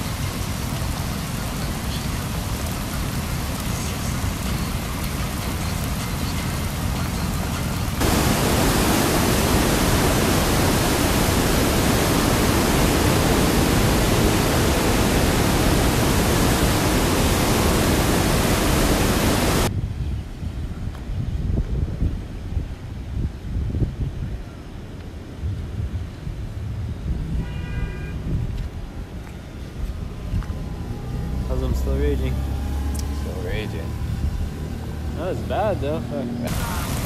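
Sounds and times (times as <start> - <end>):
river rushing through rapids: 0.0 - 19.7, 30.0 - 37.0.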